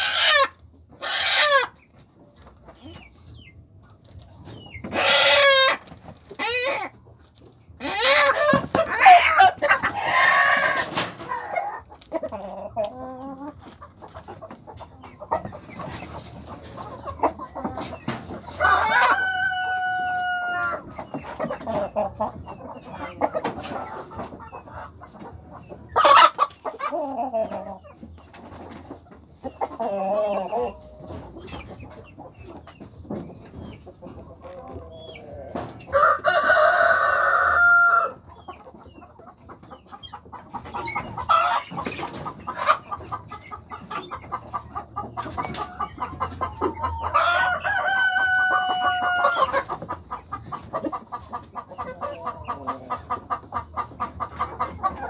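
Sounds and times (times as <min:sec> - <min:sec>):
chickens clucking and squawking: 0:00.0 - 0:55.0
rooster crowing: 0:18.6 - 0:20.8, 0:36.0 - 0:38.2, 0:47.2 - 0:49.5.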